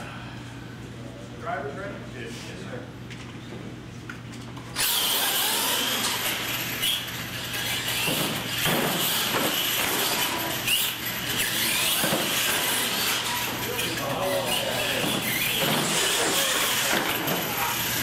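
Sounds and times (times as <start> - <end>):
toy truck electric motors whining: 4.7 - 18.0.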